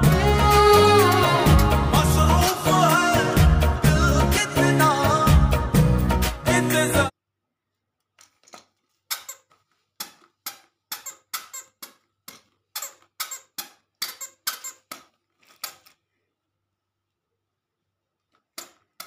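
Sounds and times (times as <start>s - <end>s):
squeaker sandals squeaking: 9.0s - 15.9s.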